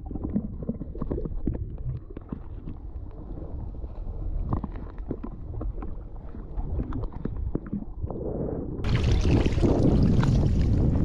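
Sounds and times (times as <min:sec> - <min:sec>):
wind noise: 0:00.0 - 0:11.0
splashing water: 0:08.9 - 0:10.8.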